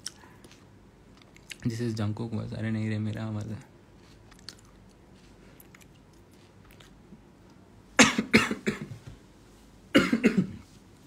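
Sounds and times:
man coughing: 0:08.0 - 0:08.9, 0:09.9 - 0:10.7.

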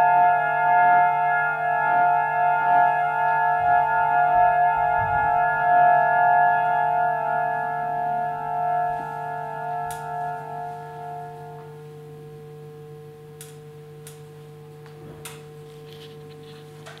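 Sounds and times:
electronic drone: 0:00.0 - 0:13.6.

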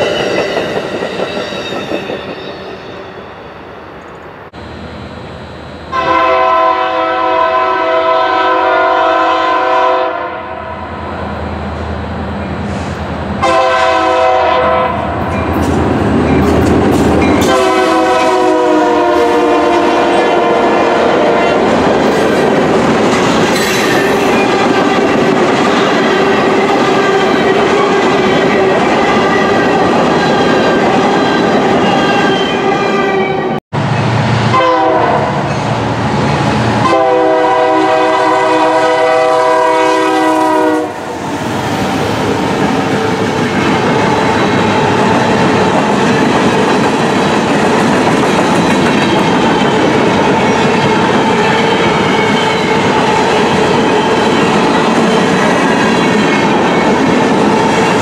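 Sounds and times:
locomotive horn blasts: 0:05.9 - 0:10.9, 0:13.4 - 0:15.1, 0:17.4 - 0:21.7, 0:34.5 - 0:35.4, 0:36.8 - 0:41.1.

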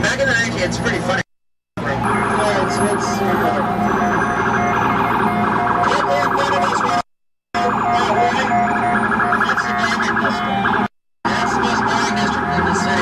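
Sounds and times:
street traffic: 0:00.0 - 0:13.0
emergency vehicle siren: 0:01.8 - 0:13.0.

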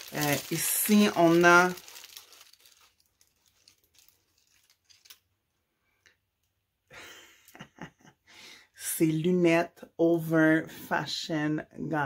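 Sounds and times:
plastic packaging rustling: 0:00.0 - 0:05.4.

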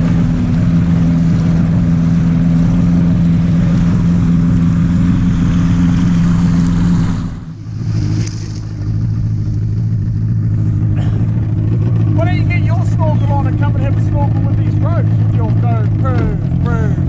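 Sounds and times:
motorboat engine running: 0:00.0 - 0:17.0
rushing noise: 0:04.4 - 0:11.7.

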